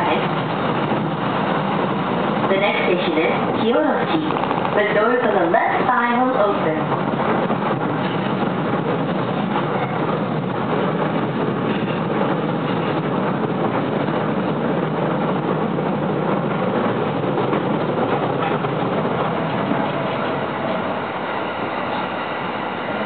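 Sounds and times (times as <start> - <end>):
electric train running noise: 0.0 - 23.0.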